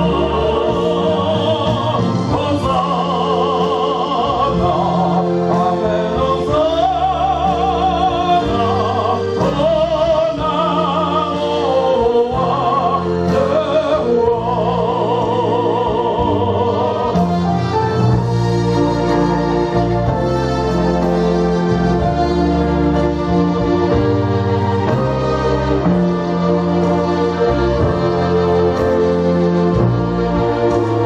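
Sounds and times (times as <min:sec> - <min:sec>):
man singing gospel song: 0:00.0 - 0:17.4
sustained keyboard chords: 0:00.0 - 0:31.0.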